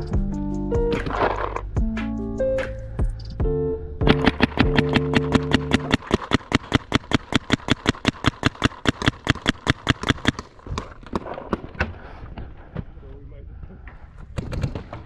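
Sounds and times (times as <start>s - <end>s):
paintball marker rapid firing: 4.1s - 11.9s, 14.3s - 15.0s.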